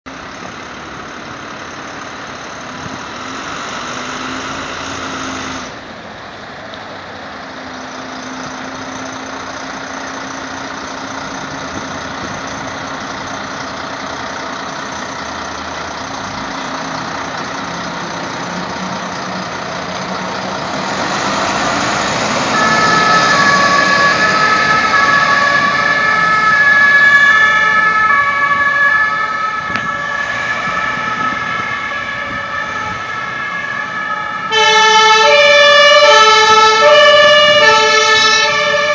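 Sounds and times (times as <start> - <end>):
fire truck engines running: 0.1 - 38.9
two-tone emergency siren: 20.7 - 38.9.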